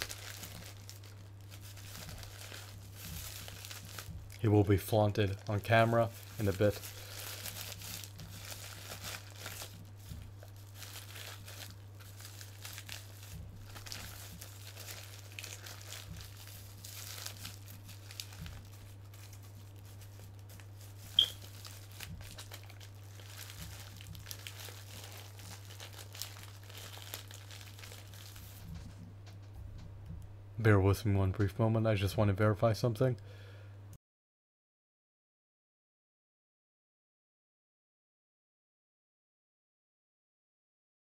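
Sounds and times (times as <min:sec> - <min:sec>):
plastic packaging crinkling: 0:00.0 - 0:29.4
steady low hum: 0:00.0 - 0:34.0.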